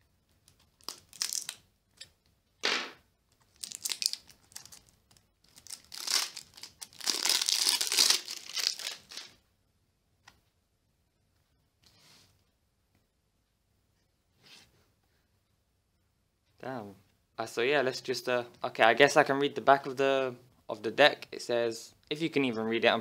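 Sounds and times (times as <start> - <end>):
plastic shrink wrap crinkling: 0.4 - 1.6, 3.4 - 9.4.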